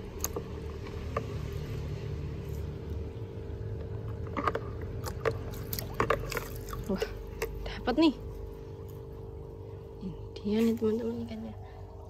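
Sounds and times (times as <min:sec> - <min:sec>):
low background hum: 0:00.0 - 0:12.0
net splashing in bucket water: 0:04.1 - 0:07.4.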